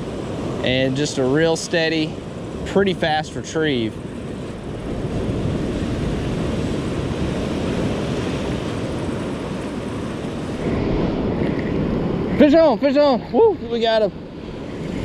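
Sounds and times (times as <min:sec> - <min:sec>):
surf washing up beach: 0:00.0 - 0:15.0
wind rumble on microphone: 0:00.0 - 0:15.0.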